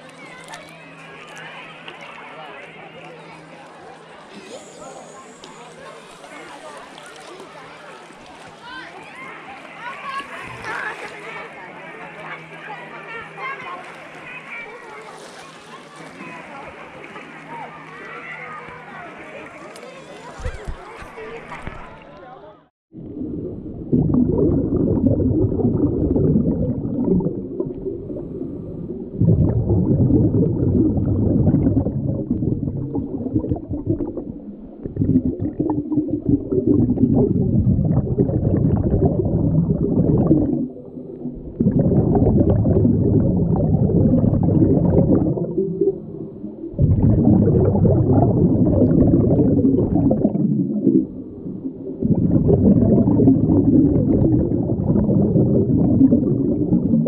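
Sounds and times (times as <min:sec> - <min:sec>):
underwater exhaled bubbles: 0:22.9 - 0:57.0.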